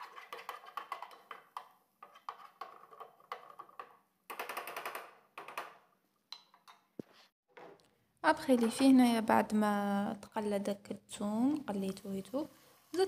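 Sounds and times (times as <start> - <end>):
wooden spatula scraping pan: 0.0 - 1.4.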